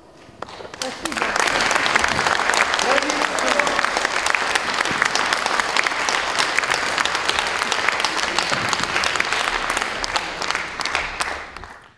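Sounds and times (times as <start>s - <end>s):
audience applauding: 0.4s - 11.9s.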